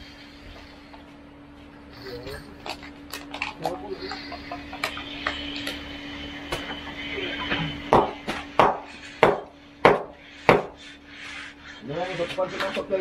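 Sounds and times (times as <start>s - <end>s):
steady low hum: 0.0s - 13.0s
hammer knocking on wood: 7.9s - 10.8s.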